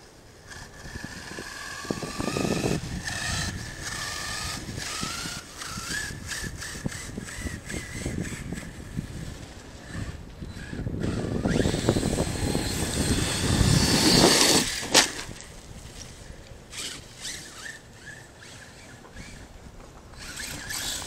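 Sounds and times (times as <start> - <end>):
electric motor whine: 0.0 - 21.0
tyres crunching on dirt: 12.8 - 18.2.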